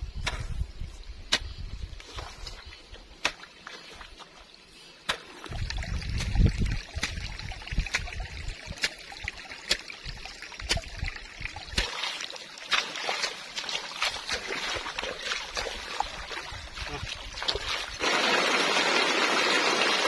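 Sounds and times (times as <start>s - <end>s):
water trickling and splashing: 1.8s - 20.0s
hoe chopping into wet mud: 5.1s - 5.4s.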